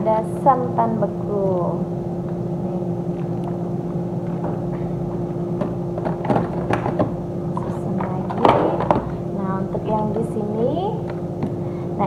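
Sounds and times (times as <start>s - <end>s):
steady low hum: 0.0s - 12.0s
plastic containers clattering: 5.6s - 9.2s.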